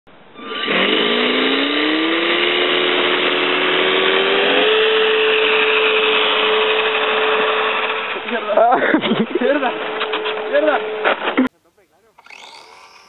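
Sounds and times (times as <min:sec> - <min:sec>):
model plane motor whine: 0:00.4 - 0:08.3, 0:12.2 - 0:13.0.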